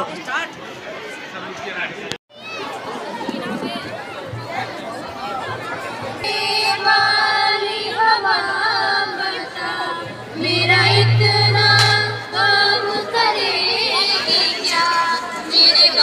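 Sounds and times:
girls singing together: 6.1 - 16.0
low steady hum: 10.2 - 12.4.

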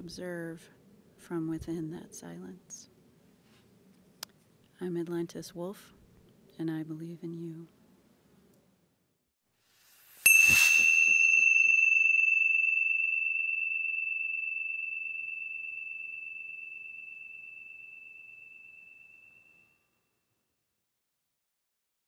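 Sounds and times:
small bell ringing: 10.2 - 19.7.

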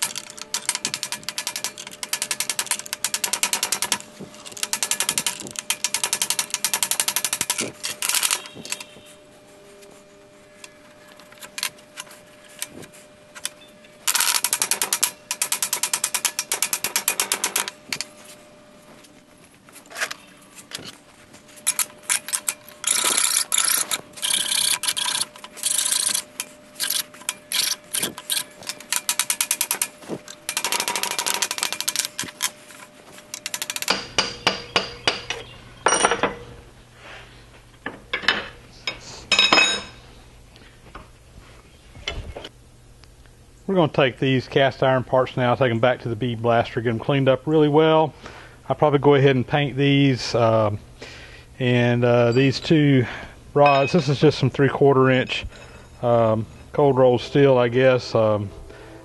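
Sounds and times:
ratchet wrench clicking: 21.6 - 29.9
metal clinks and knocks: 33.3 - 36.5, 37.8 - 40.0, 53.6 - 54.2.

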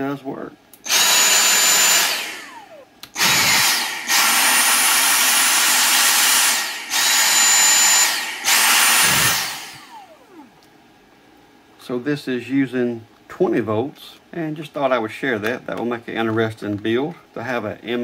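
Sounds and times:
vacuum motor whine: 0.8 - 10.6.

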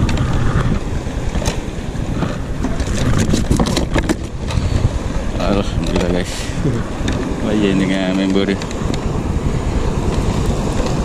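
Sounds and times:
choppy sea water: 0.0 - 11.0
wind buffeting microphone: 0.0 - 11.0
clicks and knocks of tackle: 2.2 - 4.6.

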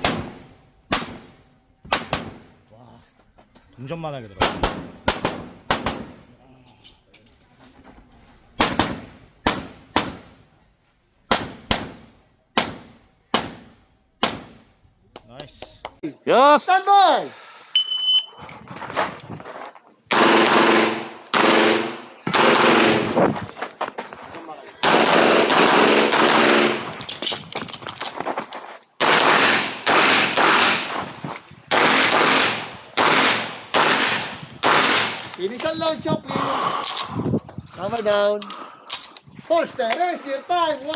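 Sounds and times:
pistol shots with ringing echo: 20.1 - 23.1, 24.8 - 26.9, 29.0 - 31.0, 31.7 - 35.2.

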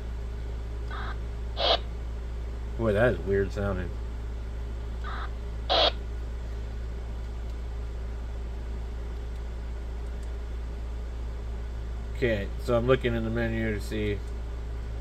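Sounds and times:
low electrical hum: 0.0 - 15.0
radio electronic chirp: 0.9 - 1.9, 5.0 - 6.0.

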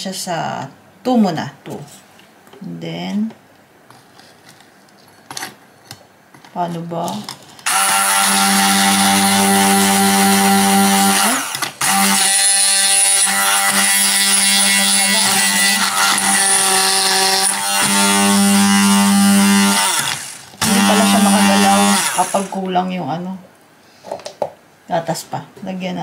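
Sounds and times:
hand blender blending ice: 7.6 - 22.6.

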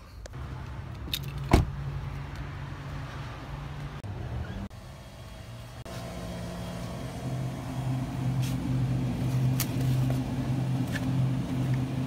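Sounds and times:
freezer humming: 5.9 - 12.0.

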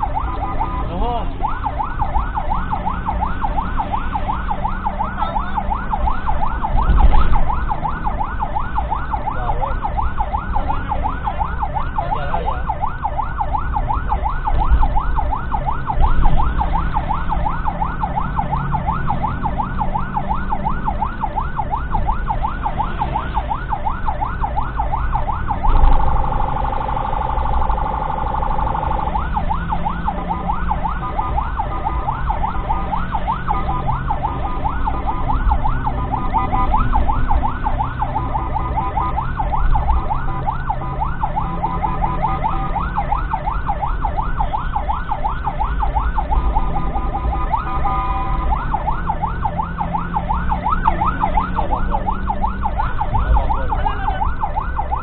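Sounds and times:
ambulance siren yelping: 0.0 - 55.0
vehicle engine: 0.0 - 55.0
low thuds: 6.4 - 7.8.

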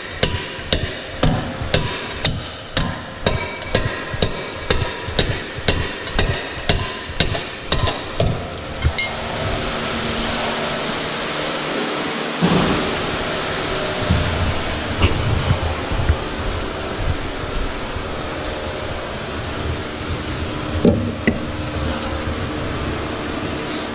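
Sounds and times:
steel bar striking metal: 0.0 - 9.2
thump: 12.4 - 12.9.

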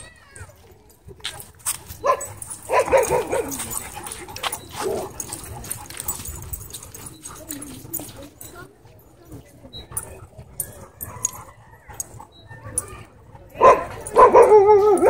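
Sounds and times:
dogs barking: 1.9 - 8.0, 13.5 - 15.0.

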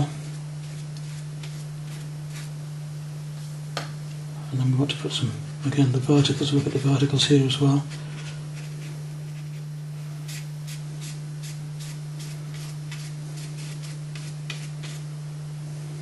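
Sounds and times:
steady low hum: 0.0 - 16.0
paintbrush dabbing on paper: 0.2 - 2.5, 10.3 - 15.0.

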